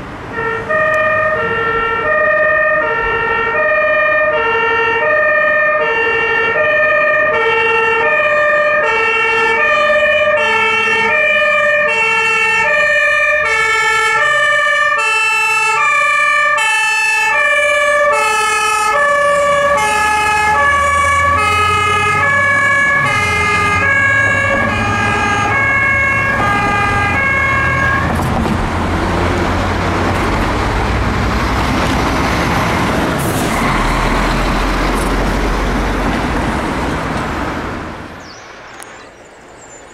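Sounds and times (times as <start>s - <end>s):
truck engine and road noise: 0.0s - 39.9s
two-tone siren horn: 0.3s - 28.2s, 33.3s - 35.0s.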